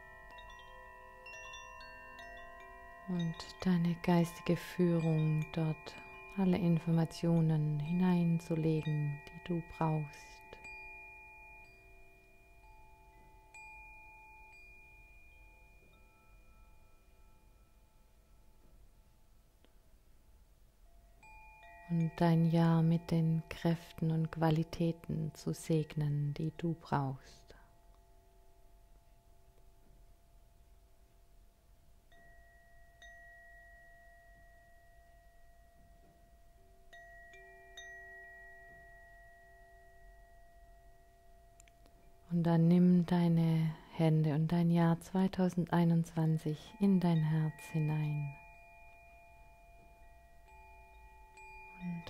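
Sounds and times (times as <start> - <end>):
chime tones: 0.0 - 18.5, 46.5 - 52.0
soft meditation music: 0.0 - 52.0.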